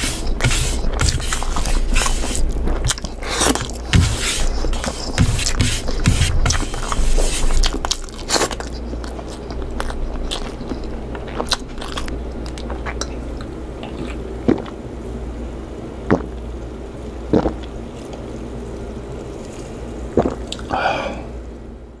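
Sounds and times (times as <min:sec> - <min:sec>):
person chewing food: 0:00.0 - 0:14.8, 0:16.1 - 0:16.4, 0:17.3 - 0:18.2, 0:19.4 - 0:20.8.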